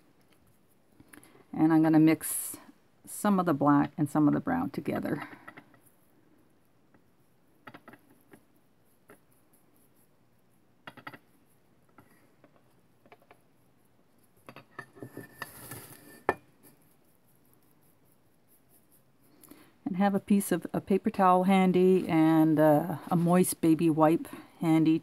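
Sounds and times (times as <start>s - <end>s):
brush scrubbing paint on palette: 0.1s - 2.3s, 5.8s - 25.0s
faint clicks and taps: 11.9s - 13.4s.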